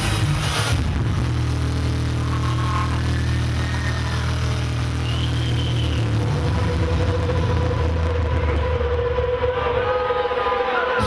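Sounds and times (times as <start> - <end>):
deep bass drone: 0.0 - 10.5.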